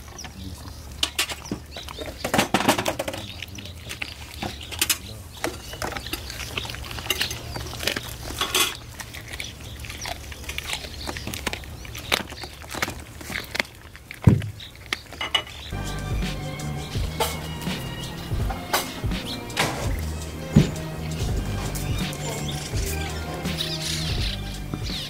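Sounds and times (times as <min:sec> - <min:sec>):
dog chewing meat: 0:05.6 - 0:15.8
low steady rumble: 0:15.8 - 0:23.5.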